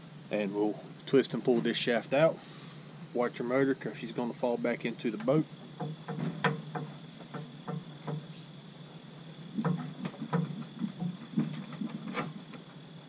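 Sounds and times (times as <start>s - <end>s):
drive shaft knocks and clunks: 5.1s - 8.4s, 9.5s - 12.7s.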